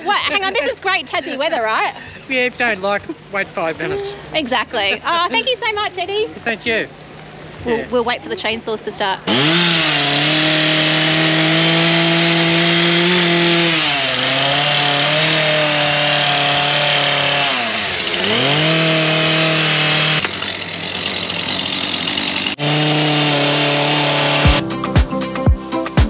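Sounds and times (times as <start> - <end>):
chainsaw running at high revs: 9.3 - 24.9.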